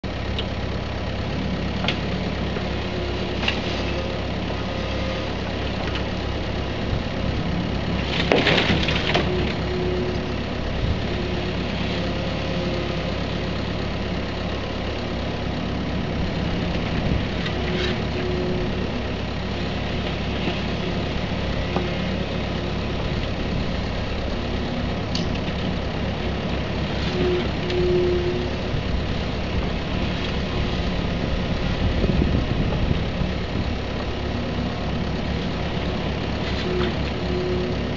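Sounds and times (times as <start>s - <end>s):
diesel engine running: 0.0s - 37.9s
hydraulic whine: 26.2s - 33.6s.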